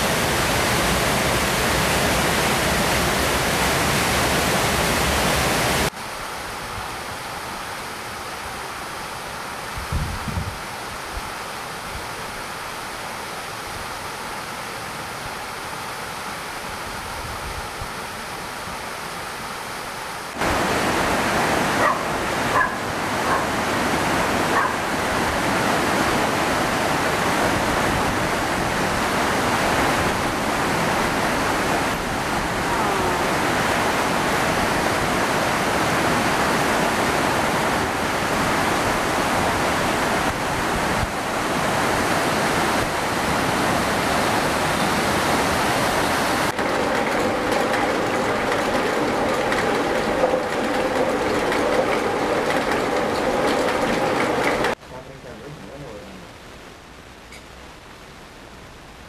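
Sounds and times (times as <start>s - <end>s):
water rushing: 0.0s - 59.0s
dog barking: 21.8s - 23.6s, 24.5s - 24.9s.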